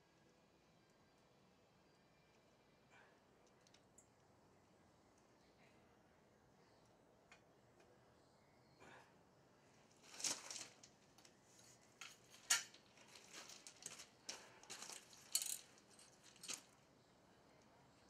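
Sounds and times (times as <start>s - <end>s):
metallic clinks and clatters: 12.0s - 16.8s.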